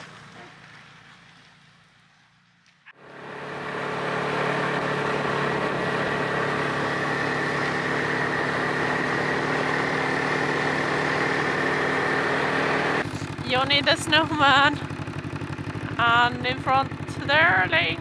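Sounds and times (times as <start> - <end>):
snowmobile engine running: 3.0 - 18.0.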